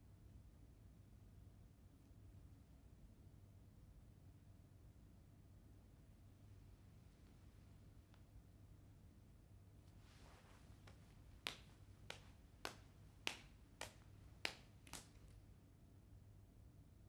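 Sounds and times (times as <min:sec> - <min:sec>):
soft swish of movement: 0:09.9 - 0:15.2
finger snaps: 0:10.8 - 0:15.4.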